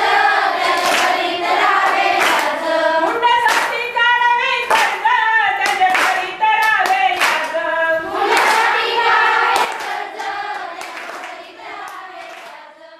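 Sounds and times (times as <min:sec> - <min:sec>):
girls singing together: 0:00.0 - 0:12.9
hands clapping in time: 0:00.8 - 0:01.2, 0:01.8 - 0:03.8, 0:04.7 - 0:07.6, 0:09.5 - 0:12.6.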